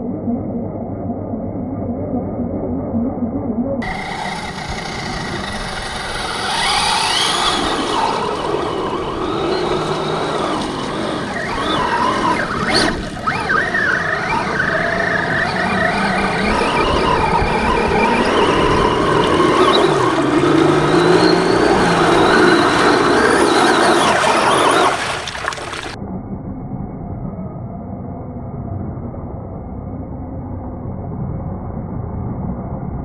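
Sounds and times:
rough wash of noise: 3.8s - 26.0s
toy truck electric motor whining: 3.8s - 26.0s.

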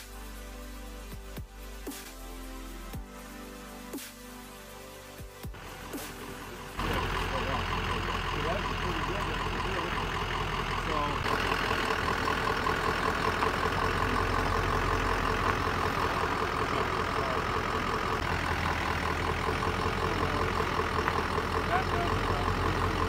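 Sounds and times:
fast even engine ticking: 5.5s - 23.0s
pickup engine idling: 5.5s - 23.0s.

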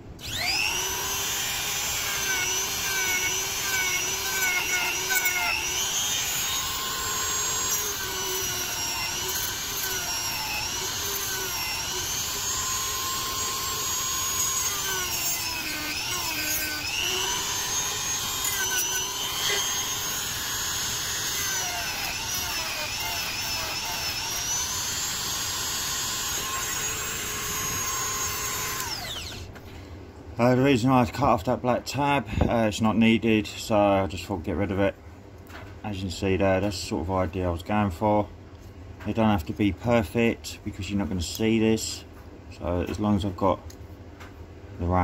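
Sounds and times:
rotary tool motor whine: 0.2s - 29.6s.

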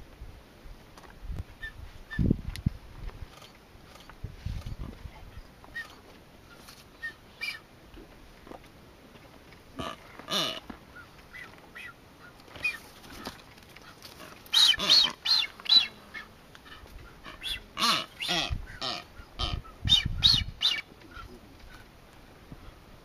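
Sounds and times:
birds calling: 3.3s - 7.7s, 9.8s - 21.9s.

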